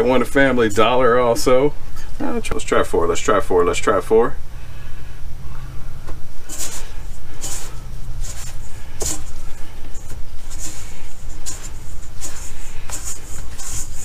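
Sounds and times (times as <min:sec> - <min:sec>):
steady low hum: 0:00.0 - 0:14.0
rustling scrapes of flour coating: 0:06.4 - 0:14.0.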